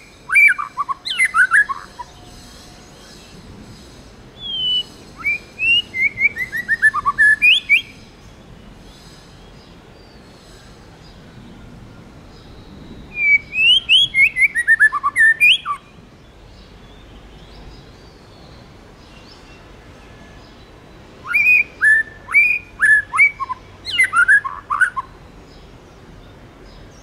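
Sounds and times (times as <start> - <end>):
bird singing whistled phrases: 0.0 - 2.3, 4.4 - 8.0, 13.1 - 15.9, 21.2 - 25.2.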